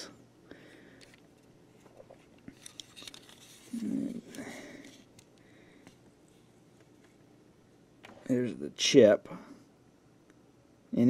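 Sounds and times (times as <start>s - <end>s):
plastic handling clicks and rubs: 1.0s - 7.2s.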